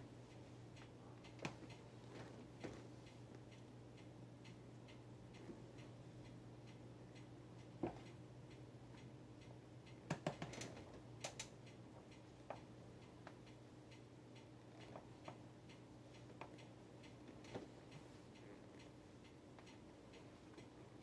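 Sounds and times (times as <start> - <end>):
faint regular ticking: 0.0 - 21.0.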